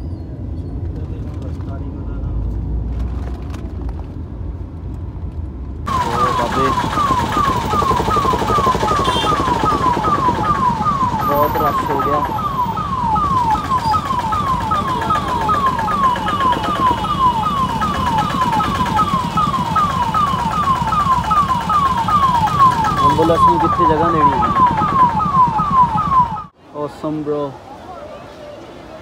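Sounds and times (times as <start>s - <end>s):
traffic and engine noise: 0.0s - 29.0s
electronic alarm falling tone: 5.9s - 26.5s.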